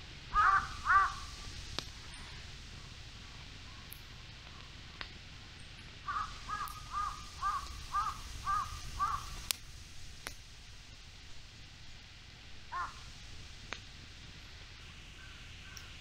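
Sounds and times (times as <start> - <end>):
crow cawing: 0.3 - 1.3, 6.0 - 9.4, 12.7 - 13.1, 15.2 - 16.0.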